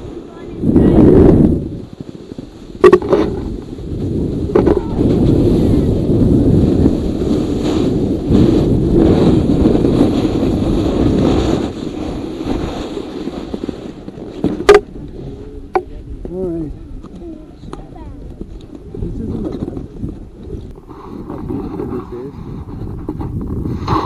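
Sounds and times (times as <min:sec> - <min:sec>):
snowboard scraping over snow: 0:00.0 - 0:15.6, 0:18.9 - 0:24.0
wind buffeting microphone: 0:00.0 - 0:24.0.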